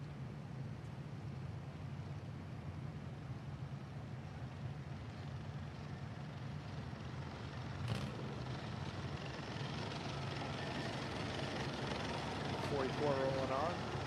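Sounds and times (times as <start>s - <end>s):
car engines rumbling: 5.5s - 14.0s.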